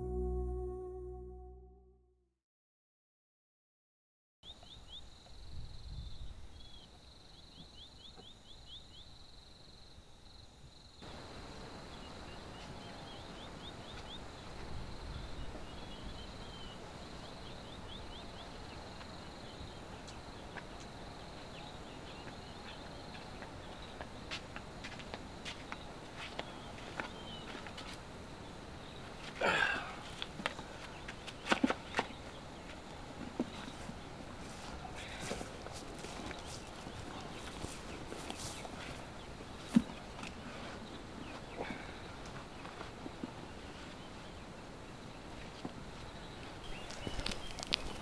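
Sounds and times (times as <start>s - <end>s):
low background rumble: 0.0s - 2.0s
footsteps: 33.4s - 39.0s.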